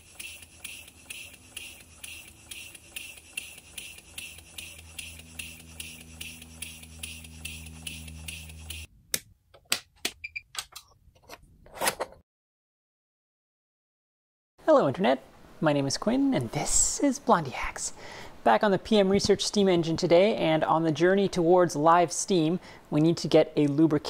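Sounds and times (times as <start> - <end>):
model steam engine chuffing: 0.0 - 8.9.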